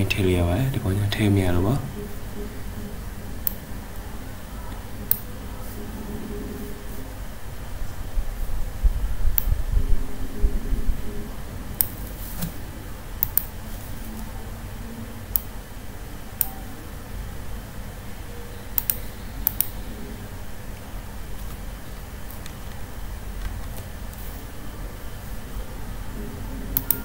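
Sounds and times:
low background rumble: 0.0 - 27.0
mouse and keyboard clicks: 13.2 - 13.5, 26.8 - 27.0.

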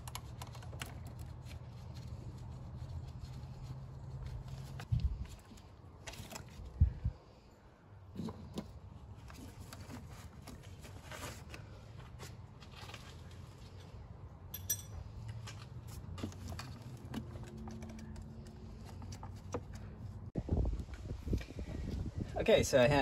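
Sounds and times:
sharp metallic clink: 14.5 - 15.0.

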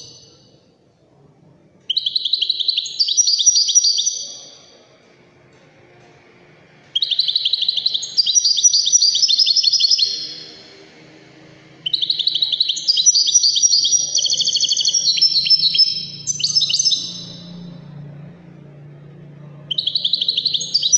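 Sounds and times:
goldfinch singing: 1.9 - 4.7, 6.9 - 10.7, 11.8 - 17.9, 19.7 - 20.9.

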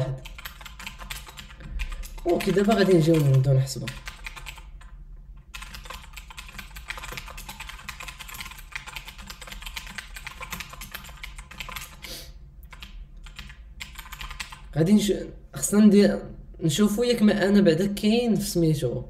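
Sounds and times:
typing on computer keyboard: 0.0 - 14.7.

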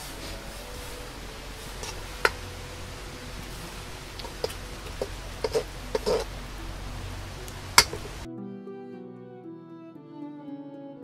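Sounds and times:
spoon scraping iron cauldron: 0.0 - 8.3
steady low hum: 0.0 - 8.3.

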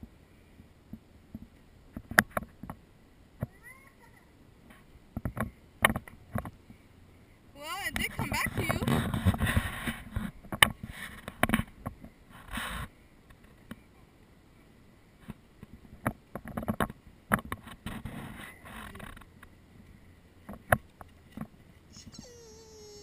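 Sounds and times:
wind buffeting a microphone: 7.9 - 11.0.

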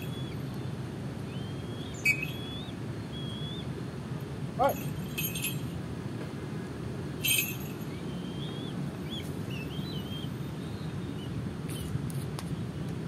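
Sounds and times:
bird chirps: 0.0 - 0.7, 1.3 - 3.7, 7.8 - 11.9
low outdoor rumble: 0.0 - 13.0.

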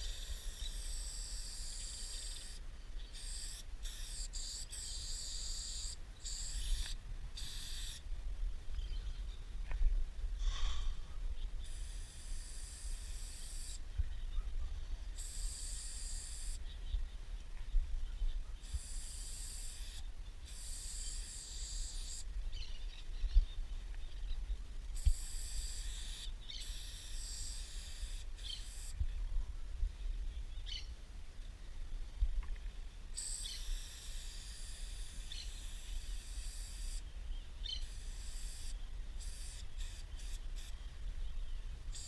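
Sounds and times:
spray paint can hissing: 0.0 - 2.6, 3.2 - 8.0, 11.6 - 13.8, 15.2 - 16.6, 18.7 - 22.2, 25.0 - 29.0, 33.2 - 37.0, 37.8 - 40.7.

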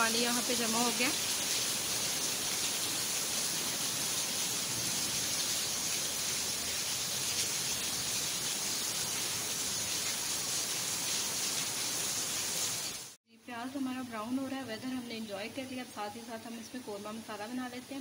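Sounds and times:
heavy rain pouring: 0.0 - 13.2.

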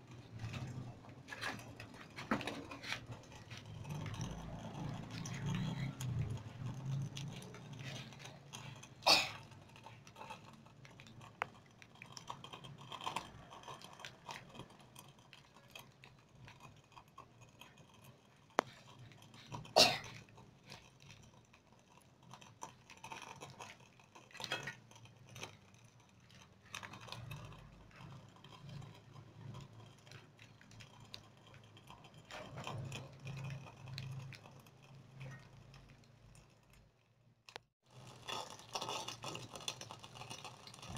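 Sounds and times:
food crackling in frying oil: 37.8 - 40.9.

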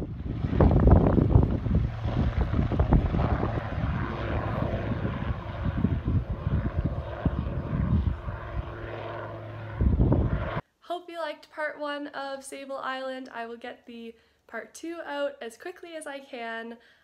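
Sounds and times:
helicopter engine and rotor drone: 0.0 - 10.6
wind gusting on microphone: 0.0 - 10.6.

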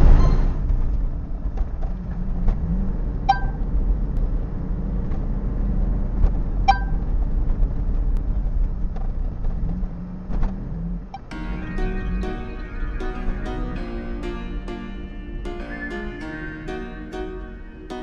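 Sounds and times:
car engine and tyre rumble: 0.0 - 11.3.

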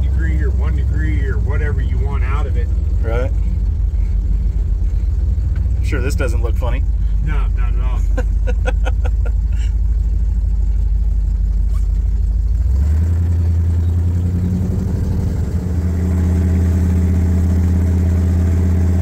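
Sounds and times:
supercharged engine accelerating: 11.6 - 19.0.

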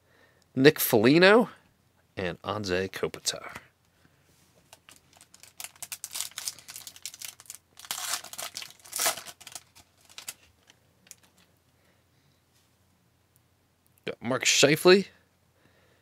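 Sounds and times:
cards rustling: 4.6 - 11.5
foil wrapper crinkling and tearing: 4.7 - 11.5.

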